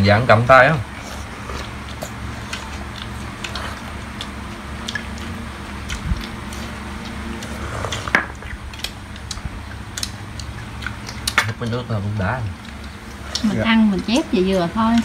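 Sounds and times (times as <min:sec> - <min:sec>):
chewing and lip-smacking: 0:00.9 - 0:15.0
chopsticks clicking against bowls: 0:01.8 - 0:15.0
people slurping broth: 0:07.4 - 0:08.2.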